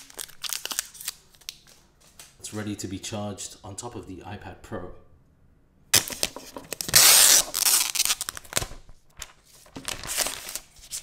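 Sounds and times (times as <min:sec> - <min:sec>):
packaging tearing and crinkling: 0:00.0 - 0:01.8, 0:06.0 - 0:11.0.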